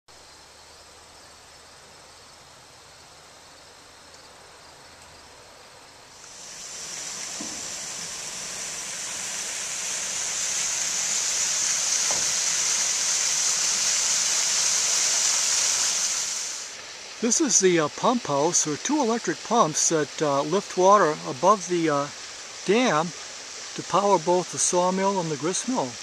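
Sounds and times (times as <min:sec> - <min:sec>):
water rushing and splashing: 0:06.1 - 0:26.0.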